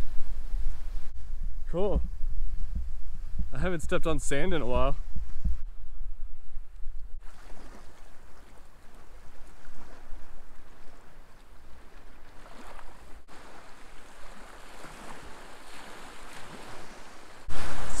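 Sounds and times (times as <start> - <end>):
small waves lapping on shore: 7.2 - 18.0.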